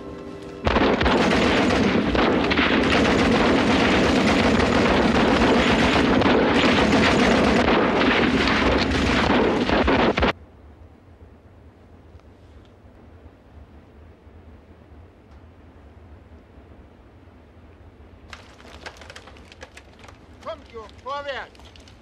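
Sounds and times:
machine-gun and rifle fire: 0.6s - 10.3s.

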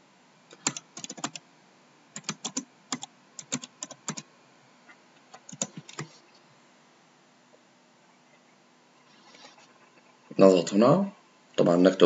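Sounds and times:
keyboard typing: 0.5s - 1.4s, 2.2s - 4.3s, 5.3s - 6.2s.

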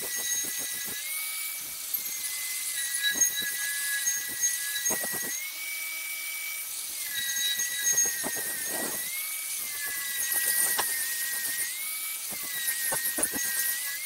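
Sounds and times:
grinder motor whine: 0.0s - 14.0s
wire wheel scrubbing metal: 7.0s - 11.7s, 12.3s - 14.0s.

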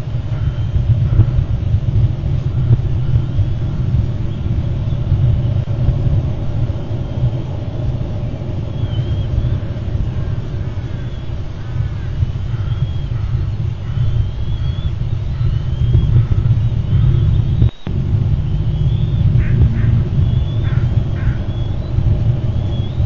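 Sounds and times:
wind buffeting microphone: 0.0s - 23.0s
faint bird chirps: 6.7s - 23.0s.

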